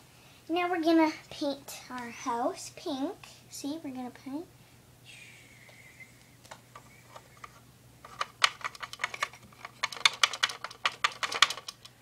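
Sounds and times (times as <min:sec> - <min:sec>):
plastic toy parts clicking: 0:08.0 - 0:11.9.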